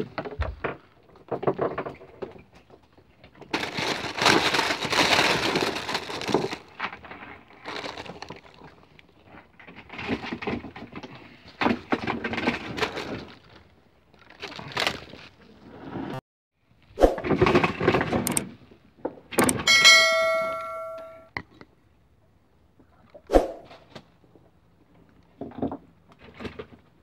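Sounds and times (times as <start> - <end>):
plastic bag crinkling: 3.5 - 8.8.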